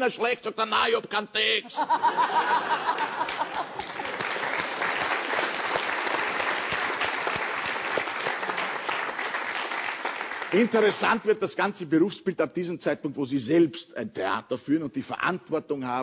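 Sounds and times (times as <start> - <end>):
audience laughter: 1.8 - 3.8
audience applauding: 2.7 - 11.2.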